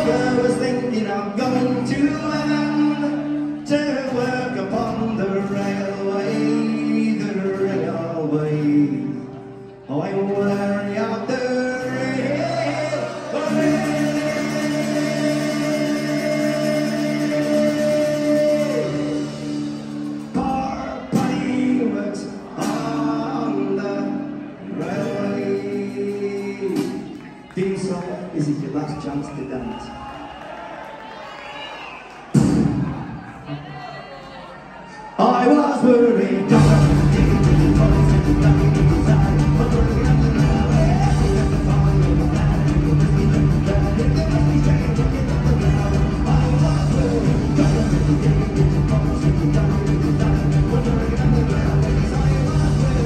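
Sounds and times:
live band playing: 0:00.0 - 0:29.0, 0:35.8 - 0:53.0
man singing: 0:00.0 - 0:29.6, 0:35.1 - 0:53.0
folk-punk band with strings: 0:36.4 - 0:53.0.

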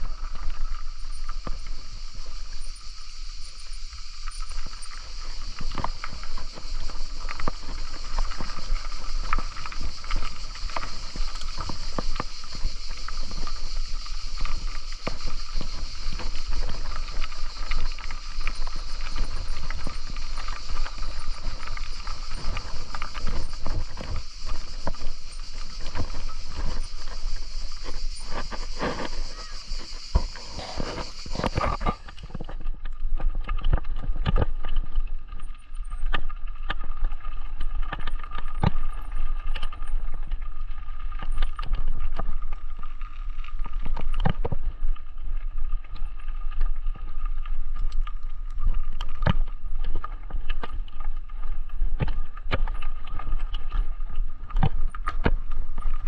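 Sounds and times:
steady high hiss: 0:00.0 - 0:32.4
wind rumbling on microphone: 0:00.0 - 0:56.0.

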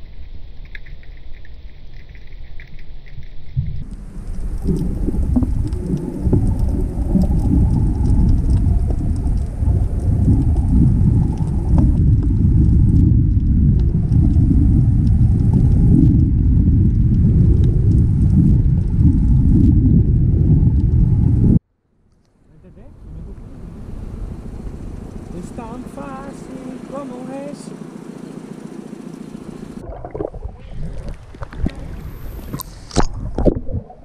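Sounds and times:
faint crackling clicks: 0:00.0 - 0:21.4, 0:22.1 - 0:22.4, 0:31.0 - 0:33.9
underwater rumble of moving water: 0:00.0 - 0:21.6, 0:22.7 - 0:34.0.

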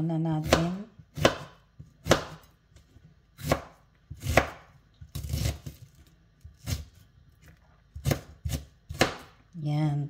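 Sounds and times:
knife chopping on cutting board: 0:00.4 - 0:05.8, 0:06.4 - 0:07.0, 0:07.9 - 0:09.4.

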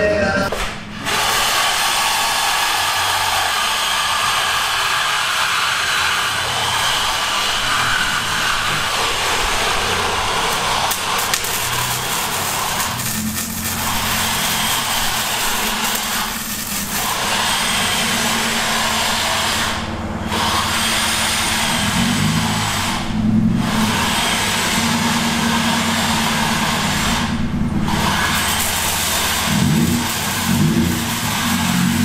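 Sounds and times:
car engine running: 0:06.4 - 0:32.0.

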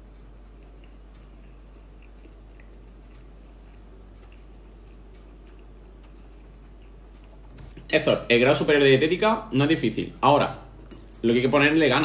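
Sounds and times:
faint chewing: 0:00.0 - 0:08.0
steady background hum: 0:00.0 - 0:12.0.

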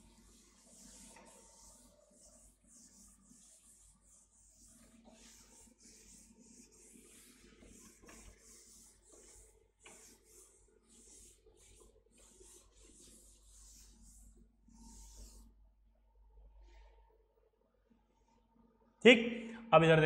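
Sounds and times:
duster swishing on chalkboard: 0:00.0 - 0:15.6.

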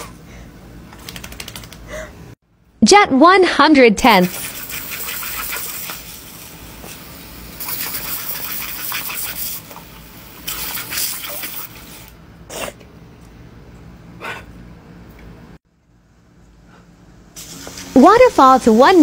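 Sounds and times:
hose nozzle water hissing: 0:04.2 - 0:09.7, 0:10.4 - 0:12.1.

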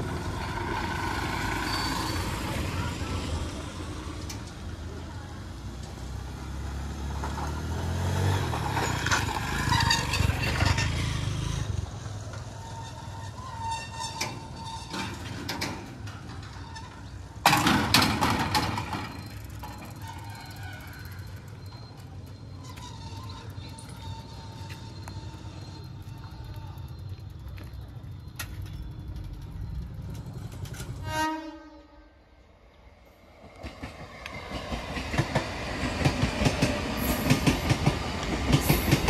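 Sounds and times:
vehicle engine passing: 0:06.0 - 0:12.1.

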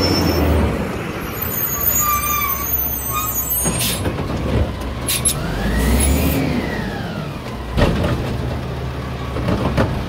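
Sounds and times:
diesel truck engine revving: 0:03.7 - 0:10.0.

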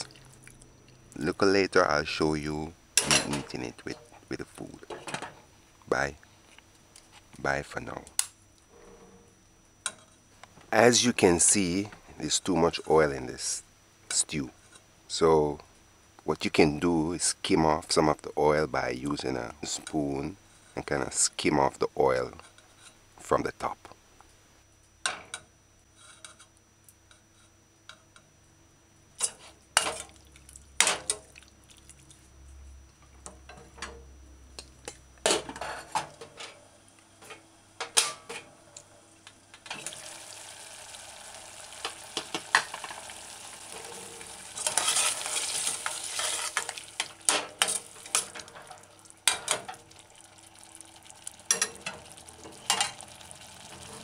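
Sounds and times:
stew sizzling in pan: 0:39.2 - 0:54.0
metal spoon scraping saucepan: 0:43.8 - 0:46.7.

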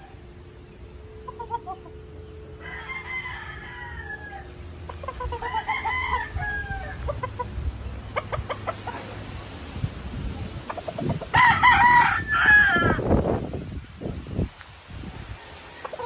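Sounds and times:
roosters crowing: 0:00.0 - 0:09.5, 0:10.6 - 0:13.6, 0:14.9 - 0:16.0.

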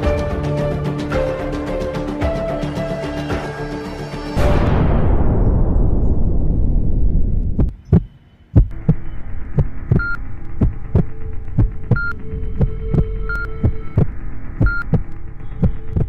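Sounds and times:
deep boom: 0:04.4 - 0:15.1
low thumps: 0:04.4 - 0:16.0.

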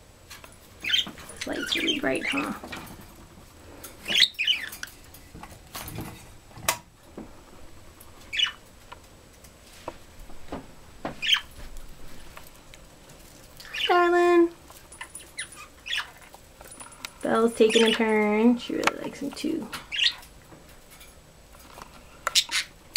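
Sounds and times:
beaks and feet tapping on cage: 0:00.3 - 0:07.3
budgerigars chirping: 0:00.8 - 0:02.6, 0:04.1 - 0:04.8, 0:08.3 - 0:08.6, 0:11.2 - 0:11.5, 0:13.6 - 0:14.2, 0:15.2 - 0:16.2, 0:17.6 - 0:18.2, 0:19.9 - 0:20.3, 0:22.3 - 0:22.7.

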